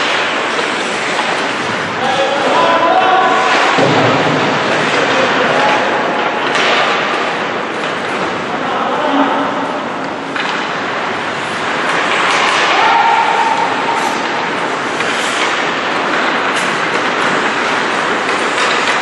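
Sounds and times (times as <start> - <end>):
skate blades scraping ice: 0.0 - 3.8, 4.5 - 8.6, 9.3 - 19.0
hockey sticks and puck clacking: 0.0 - 19.0.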